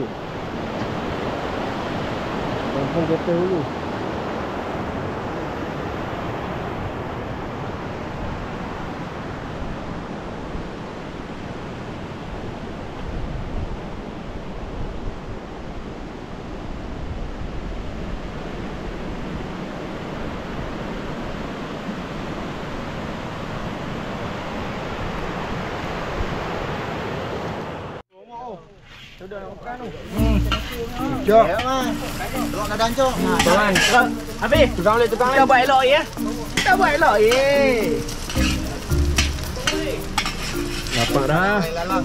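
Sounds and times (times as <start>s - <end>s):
river water rushing over rocks: 30.7s - 42.0s.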